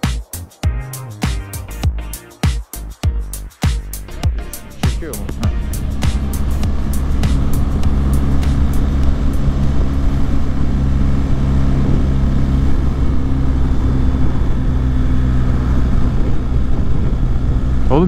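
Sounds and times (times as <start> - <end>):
motorcycle engine cruising: 3.7 - 18.0
wind rush over microphone: 4.8 - 18.0.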